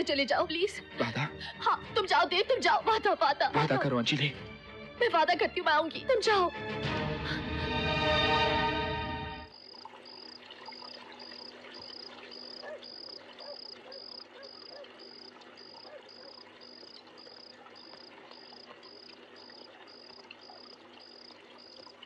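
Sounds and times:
crickets chirping: 9.5s - 22.0s.

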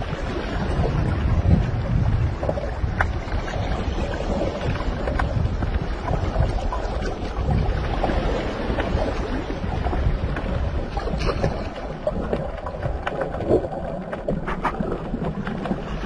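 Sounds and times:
water splashes: 0.0s - 16.0s
wind rumbling on microphone: 0.0s - 16.0s.

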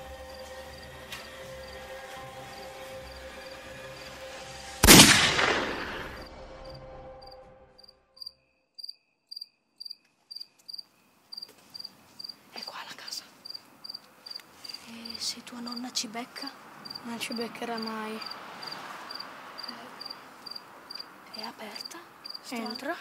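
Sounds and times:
crickets chirping: 0.0s - 5.0s, 5.7s - 23.0s
low drone: 0.0s - 7.8s
loud sudden crash: 4.8s - 7.4s.

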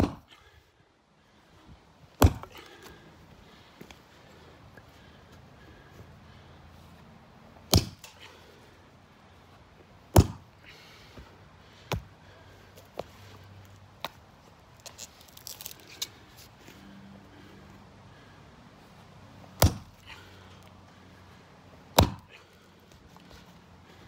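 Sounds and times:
hatchet chopping wood: 0.0s - 0.3s, 2.2s - 2.7s, 7.7s - 8.2s, 10.1s - 10.5s, 19.6s - 20.0s, 21.9s - 22.3s
small wood clicks and cracks: 14.8s - 16.2s.

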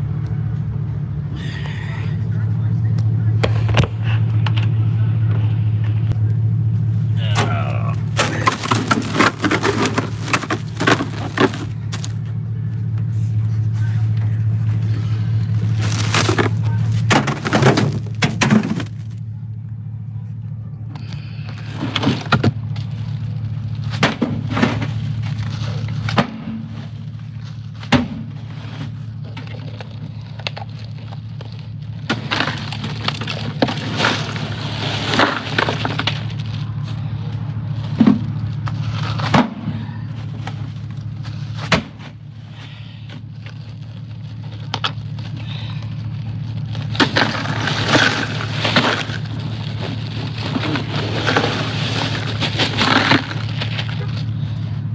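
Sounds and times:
steady low hum: 0.0s - 54.9s
ice cubes crunching in plastic bags: 8.1s - 12.1s, 15.5s - 19.2s, 29.5s - 36.9s, 43.3s - 54.5s.

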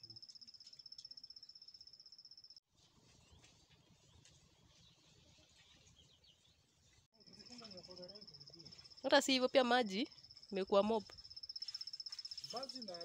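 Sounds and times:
cricket trilling: 7.2s - 13.0s.

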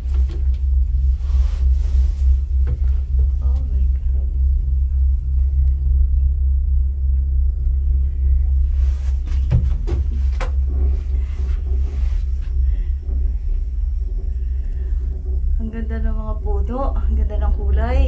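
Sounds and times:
gondola cabin rumble: 0.0s - 18.0s.

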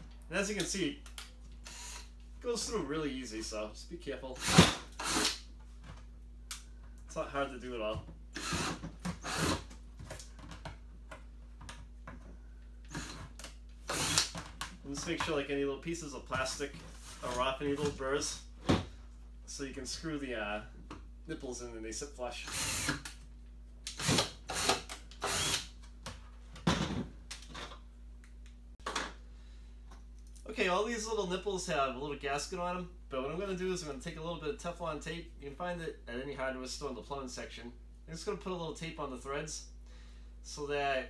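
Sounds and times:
cordless drill bursts: 1.6s - 2.2s, 4.4s - 5.4s, 8.4s - 9.7s, 12.9s - 14.4s, 22.4s - 23.0s, 23.9s - 25.7s.

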